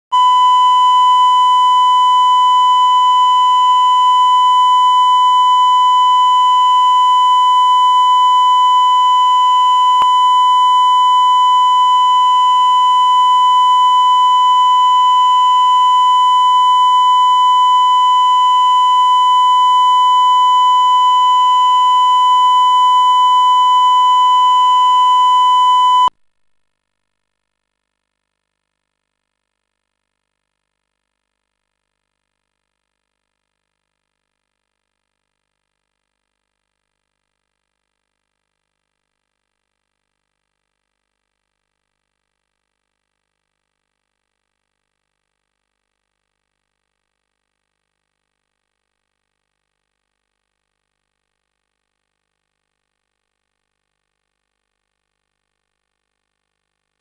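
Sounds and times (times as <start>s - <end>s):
high-pitched test tone beep: 0.1s - 16.8s, 21.9s - 26.1s.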